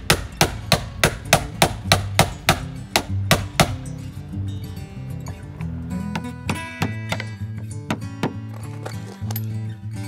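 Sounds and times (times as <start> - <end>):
mallet striking impact driver: 0.0 - 3.9
faint background music: 0.0 - 10.0.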